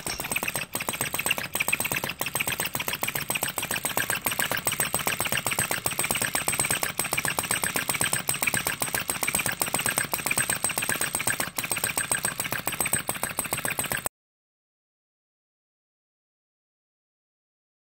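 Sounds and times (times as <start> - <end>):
small engine rapid clatter: 0.0 - 14.1.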